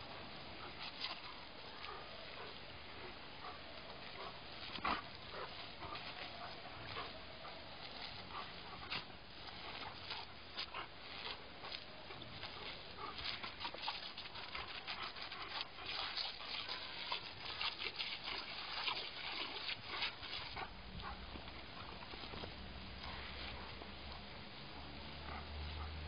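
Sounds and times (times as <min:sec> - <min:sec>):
dog snapping at water: 0:07.9 - 0:22.5.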